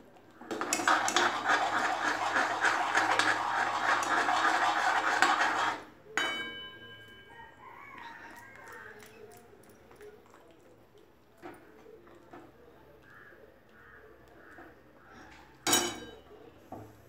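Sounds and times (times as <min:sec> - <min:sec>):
metal spoon stirring batter in pan: 0:00.4 - 0:06.0.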